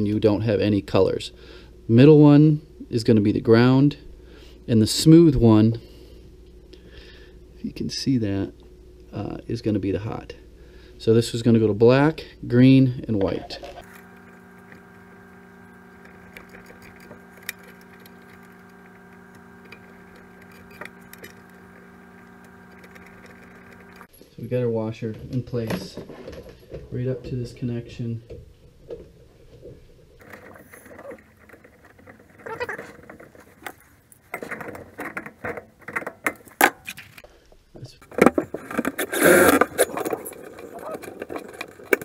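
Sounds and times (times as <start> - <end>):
fan humming: 0.0 - 42.0
wire connectors clicking: 13.8 - 24.1.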